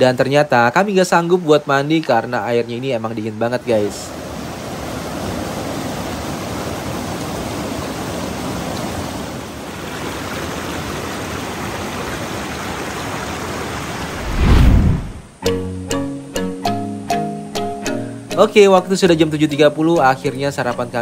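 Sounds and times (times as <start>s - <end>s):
river water rushing: 3.6s - 15.4s.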